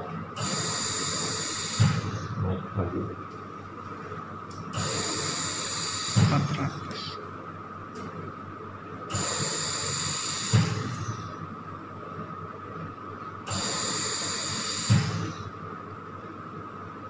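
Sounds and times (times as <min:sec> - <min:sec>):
ventilator gas hiss: 0:00.4 - 0:02.4, 0:04.7 - 0:07.2, 0:09.1 - 0:11.4, 0:13.5 - 0:15.5
ventilator low thump: 0:01.8 - 0:03.2, 0:06.2 - 0:06.6, 0:10.5 - 0:11.1, 0:14.9 - 0:15.3.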